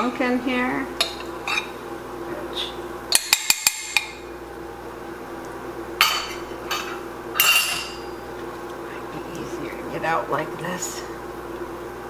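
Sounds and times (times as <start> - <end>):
glass container clinking: 6.0 - 8.1.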